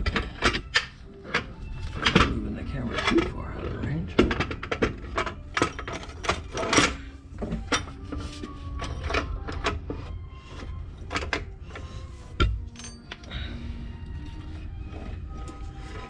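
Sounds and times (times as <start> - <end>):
metal clinks and knocks: 4.1 - 13.6.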